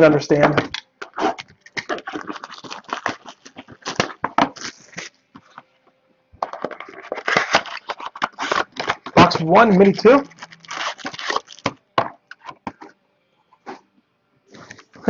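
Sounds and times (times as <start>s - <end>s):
cardboard rubbing and clicks: 0.5s - 5.6s, 6.4s - 12.9s.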